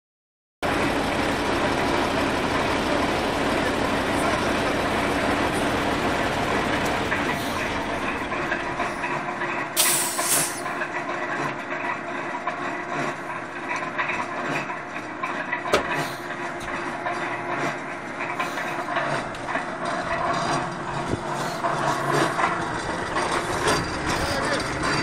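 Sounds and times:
loud hiss: 0:09.8 - 0:10.6.

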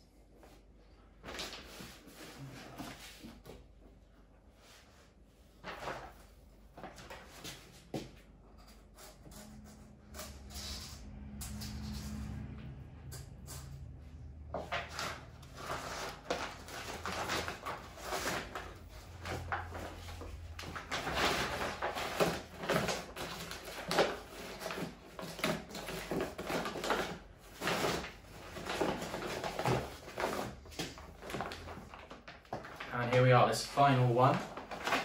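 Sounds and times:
paper rustling and crinkling: 0:01.2 - 0:03.6, 0:05.4 - 0:08.1, 0:14.6 - 0:35.0.

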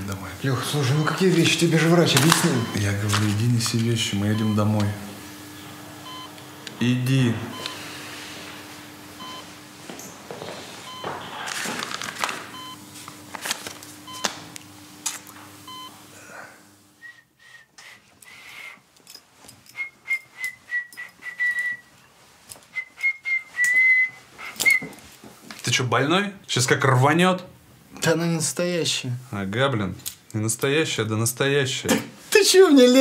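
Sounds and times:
medical monitor beeping: 0:00.0 - 0:05.1, 0:06.0 - 0:10.1, 0:10.8 - 0:12.9, 0:14.0 - 0:14.4, 0:15.6 - 0:16.0
steady electrical hum: 0:00.0 - 0:33.0
man whistling: 0:17.0 - 0:18.5, 0:19.7 - 0:21.9, 0:22.7 - 0:25.0.

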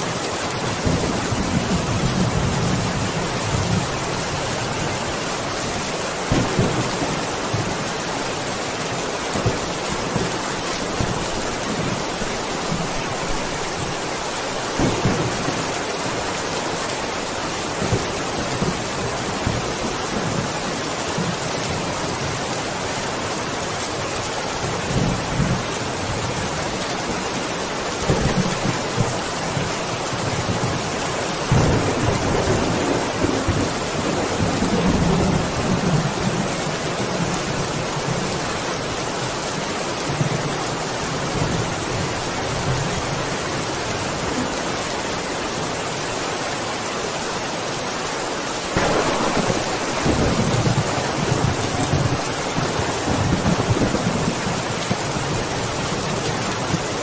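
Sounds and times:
steady rain: 0:00.0 - 0:57.0
thunder rumbling: 0:00.6 - 0:20.6, 0:28.0 - 0:36.5, 0:48.7 - 0:57.0.

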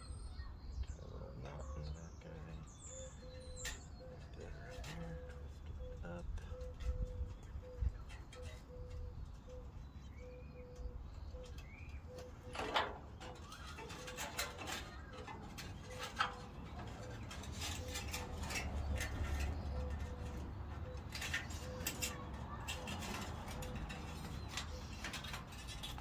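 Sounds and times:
faint bird chirps: 0:00.0 - 0:26.0
metallic clicks and rattles: 0:10.7 - 0:26.0.

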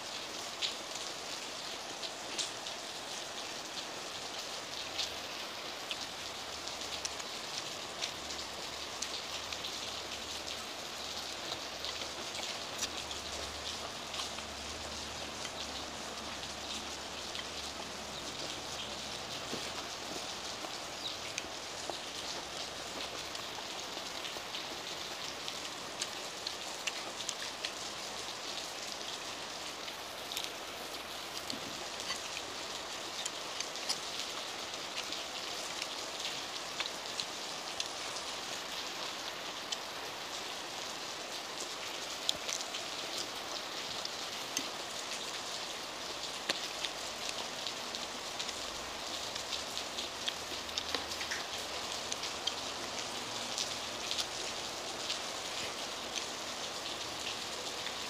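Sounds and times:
heavy rain falling: 0:00.0 - 0:58.0.

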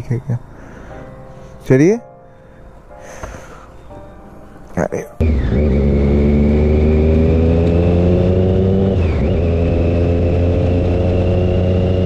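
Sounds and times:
motorcycle engine pulling away: 0:05.2 - 0:12.0.

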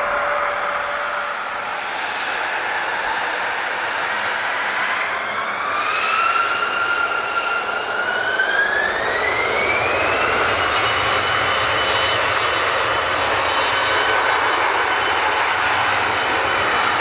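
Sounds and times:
jet engines whining: 0:00.0 - 0:17.0.

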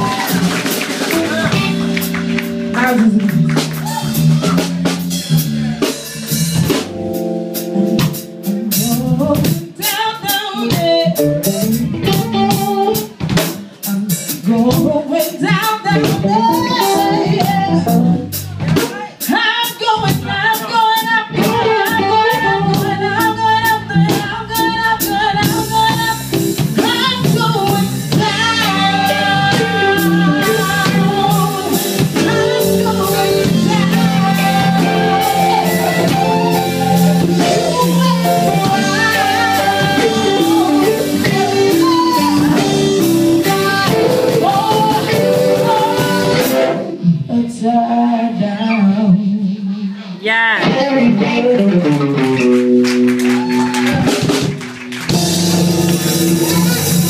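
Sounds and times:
drum kit beat: 0:00.0 - 0:47.2, 0:50.2 - 0:57.0
neo-soul band playing: 0:00.0 - 0:57.0
woman singing: 0:02.7 - 0:04.2, 0:08.4 - 0:52.1.

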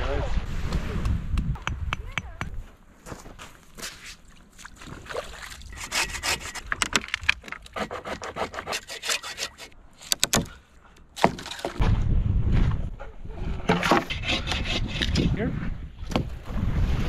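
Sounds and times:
rasping wood-on-wood strokes: 0:05.8 - 0:06.7, 0:07.8 - 0:09.8, 0:13.8 - 0:15.2
sharp wood knocks: 0:16.1 - 0:16.4.

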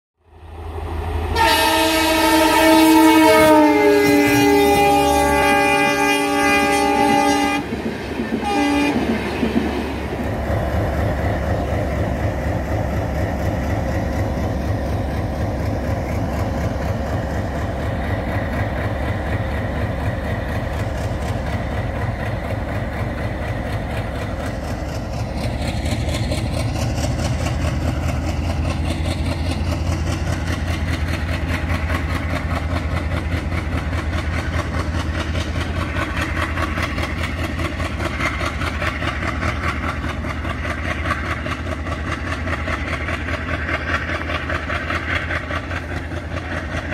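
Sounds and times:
locomotive horn blast: 0:01.3 - 0:07.7, 0:08.4 - 0:09.0.

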